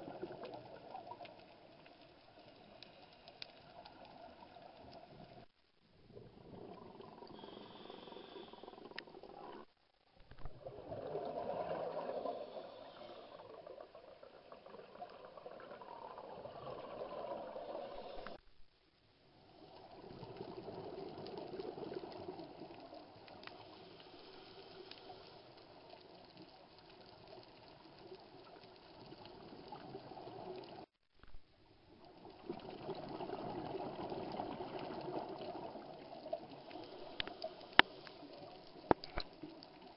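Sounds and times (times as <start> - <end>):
regulator breathing: 7.3 - 9.0
underwater exhaust bubbles: 32.2 - 39.9.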